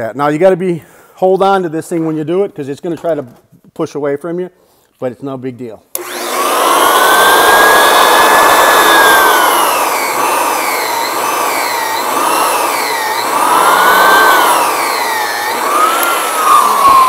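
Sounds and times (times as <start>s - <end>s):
floor sander motor whining: 6.0s - 17.0s.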